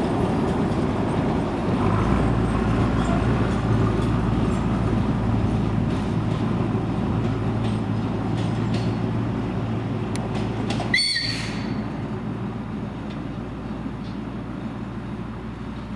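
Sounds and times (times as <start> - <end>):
diesel locomotive engine rumble: 0.0 - 15.9
high whistle-like squeal: 10.9 - 11.8.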